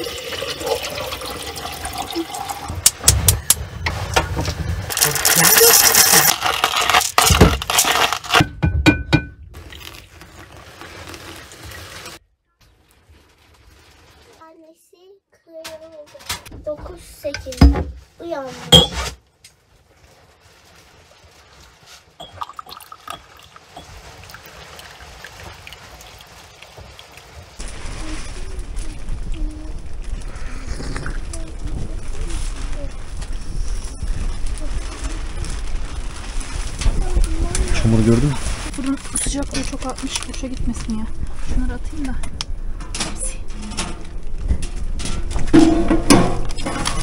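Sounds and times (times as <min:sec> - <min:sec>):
hot water pouring onto coffee: 0:00.0 - 0:03.1, 0:09.6 - 0:12.2, 0:22.2 - 0:36.8
glass clinks: 0:22.2 - 0:23.9
tea trickling into glass cup: 0:22.2 - 0:27.2.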